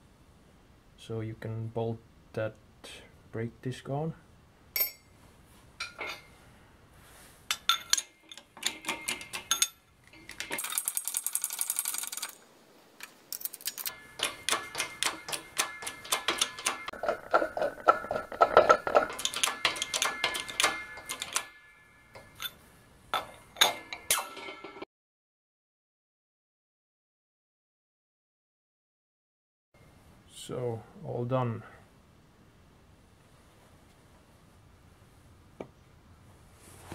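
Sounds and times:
hydraulic press metallic clicks: 13.9s - 22.5s.

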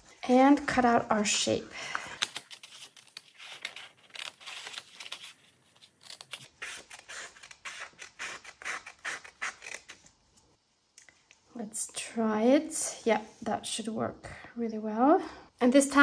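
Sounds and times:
scissors snipping paper: 2.1s - 10.0s.

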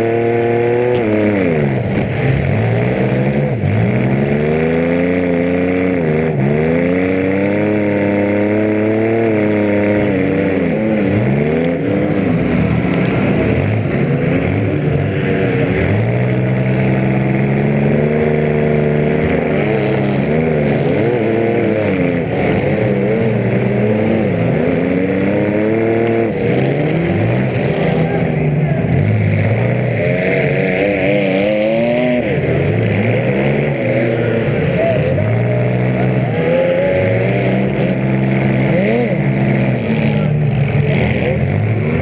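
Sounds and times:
car engine revving: 0.0s - 42.0s.

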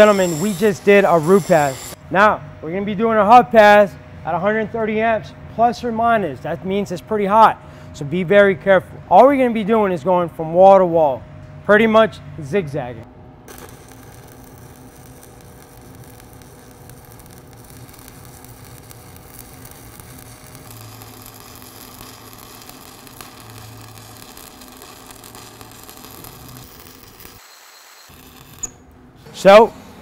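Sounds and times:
welding arc crackling sizzle: 0.0s - 2.0s, 13.4s - 29.7s
faint hum: 0.0s - 30.0s.

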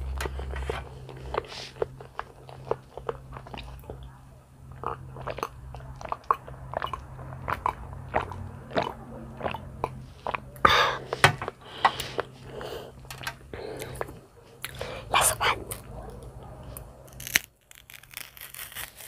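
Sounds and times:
person gulping milk: 0.0s - 4.1s, 4.7s - 15.9s.

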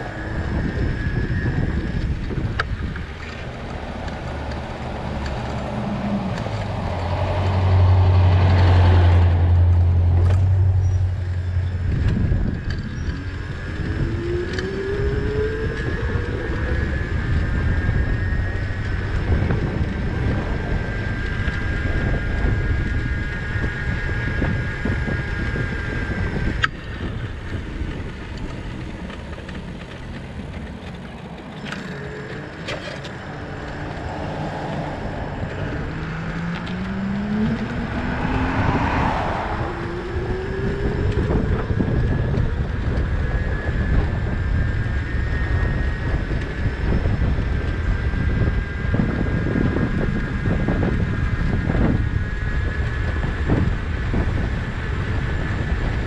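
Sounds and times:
bicycle tyre rumble on pavement: 0.0s - 56.0s
rising whine: 0.0s - 56.0s
wind buffeting microphone: 0.0s - 56.0s.

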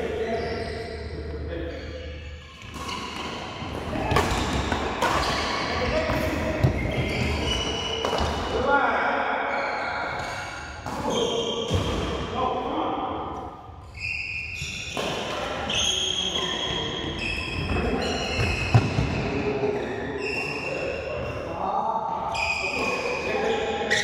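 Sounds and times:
shoes squeaking on court floor: 0.1s - 8.5s, 13.8s - 21.4s, 22.3s - 24.0s.

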